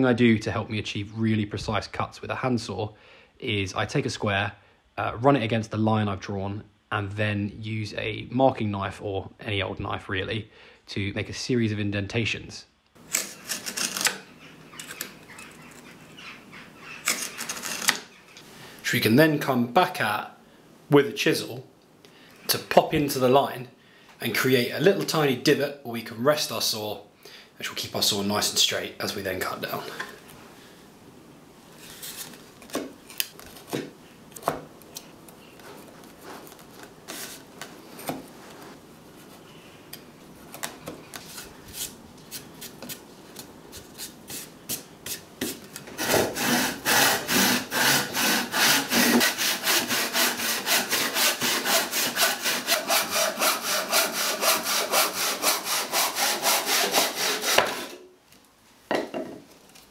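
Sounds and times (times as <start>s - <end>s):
saw cutting wood: 16.8s - 18.2s, 46.0s - 58.0s.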